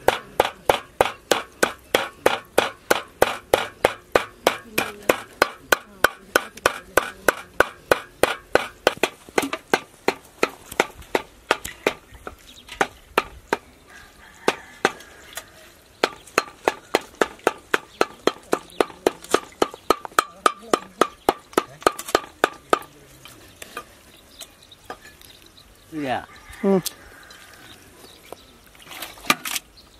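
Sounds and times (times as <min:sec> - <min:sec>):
cleaver chopping on wooden block: 0:00.0 - 0:13.6, 0:16.0 - 0:22.9.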